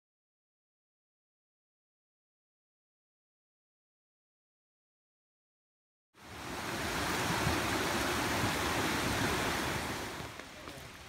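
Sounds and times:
mountain creek rushing: 6.2s - 11.0s.

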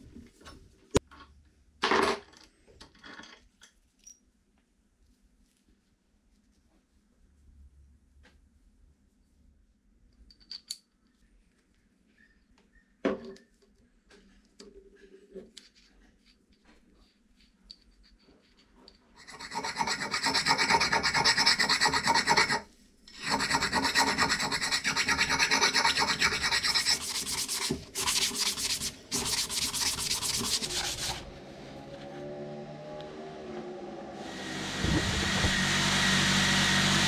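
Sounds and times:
scrubbing steel with abrasive: 19.2s - 31.3s.

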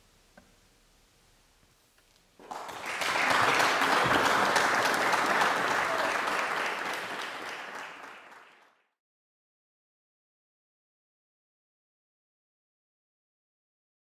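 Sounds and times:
audience applauding: 2.4s - 8.9s.

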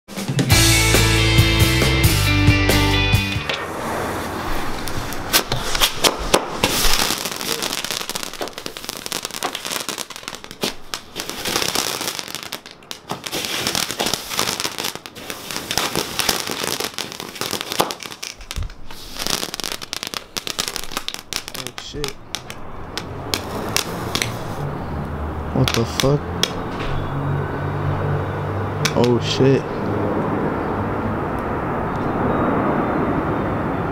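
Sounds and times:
firework crackling and popping: 3.4s - 24.6s, 25.6s - 26.6s.

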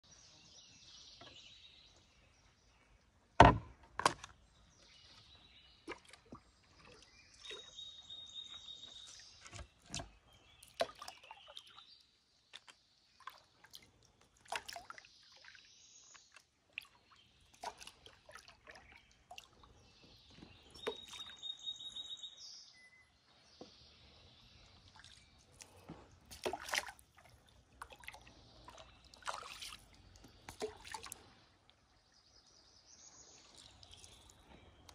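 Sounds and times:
paddle knocking against hull: 3.4s - 4.3s
paddle sloshing water: 5.2s - 11.8s, 12.5s - 21.5s, 24.9s - 31.9s
birds calling: 15.2s - 27.2s.

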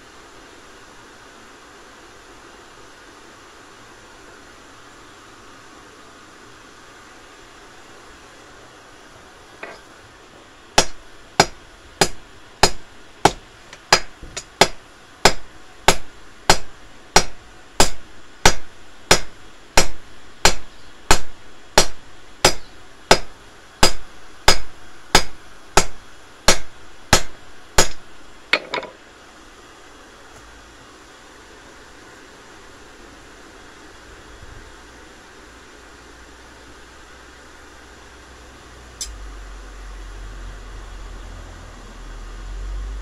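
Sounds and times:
hammer striking metal on anvil: 10.8s - 28.0s.

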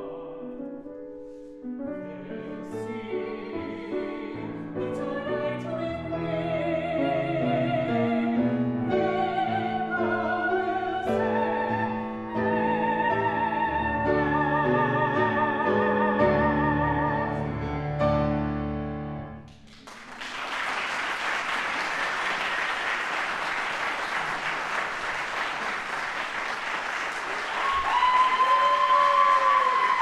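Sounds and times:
man and woman singing a duet: 2.2s - 17.3s
audience applause: 19.6s - 30.0s
audience cheering: 21.7s - 30.0s.

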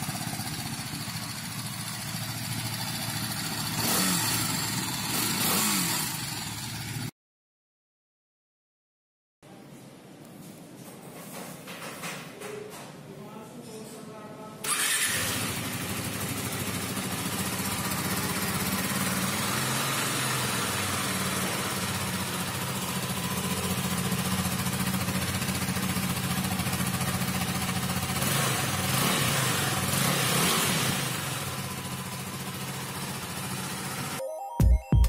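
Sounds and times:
motorcycle engine idling: 0.0s - 7.1s, 14.7s - 34.2s.

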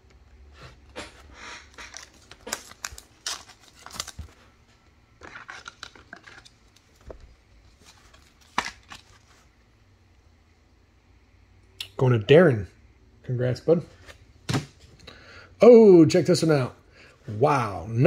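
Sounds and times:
plastic sleeve rustling and crinkling: 1.6s - 4.6s.

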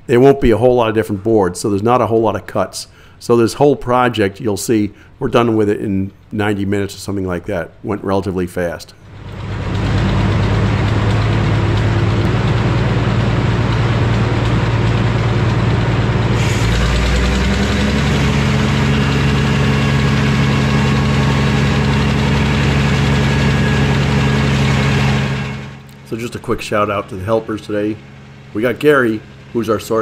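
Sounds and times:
sawmill blade humming: 9.0s - 30.0s
saw cutting log hissing: 16.2s - 26.2s.

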